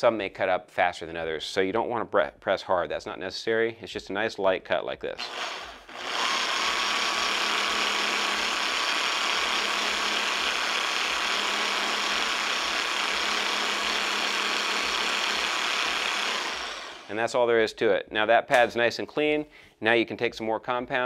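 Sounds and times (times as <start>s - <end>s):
polisher motor hum and whine: 5.2s - 17.1s.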